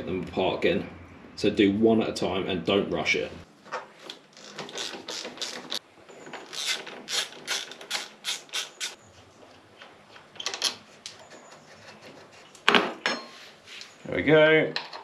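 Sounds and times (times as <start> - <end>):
socket ratchet clicking: 6.5 - 9.0.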